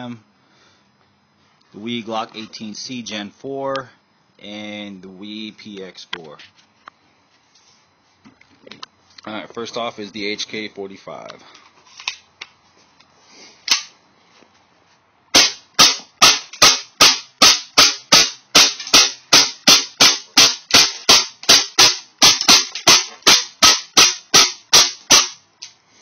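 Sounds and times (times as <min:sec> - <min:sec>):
airsoft pistol firing: 0:15.3 - 0:25.4.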